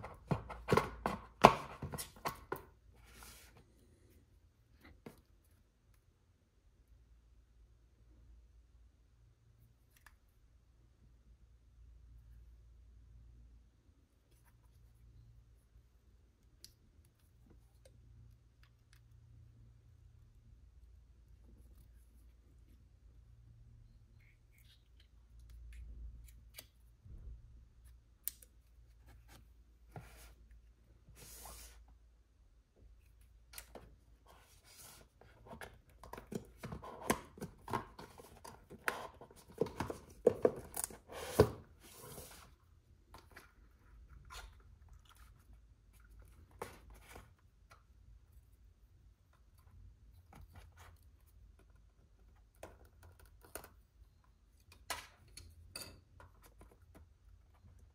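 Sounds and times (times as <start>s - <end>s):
cardboard and plastic handling: 0.0s - 3.6s, 33.6s - 42.5s.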